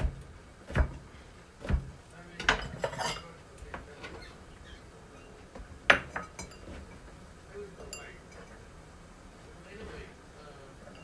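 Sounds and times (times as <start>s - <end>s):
knife chopping on plastic board: 0.0s - 2.0s
knife and bowl clattering: 2.4s - 3.4s, 5.9s - 6.9s.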